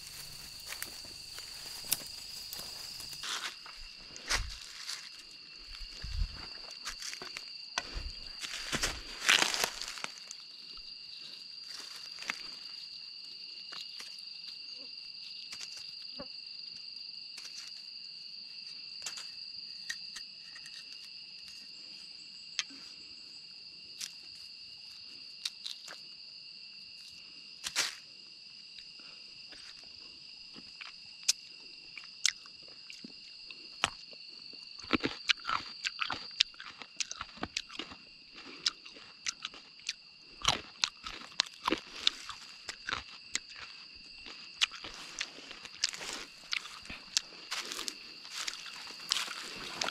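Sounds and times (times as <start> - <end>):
fruit husks cracking and crunching: 0.0 - 11.0, 24.0 - 26.0, 29.5 - 49.9
high insect drone: 0.0 - 49.9.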